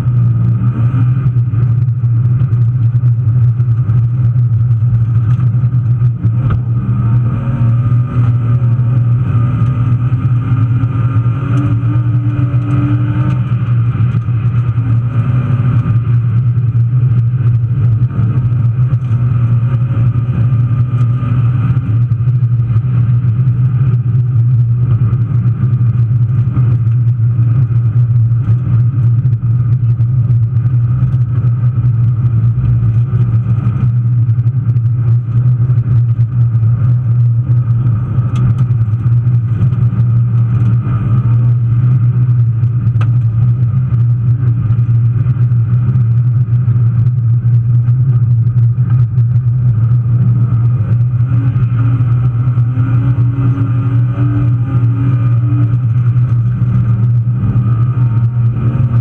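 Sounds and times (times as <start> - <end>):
car engine droning: 0.0 - 59.0.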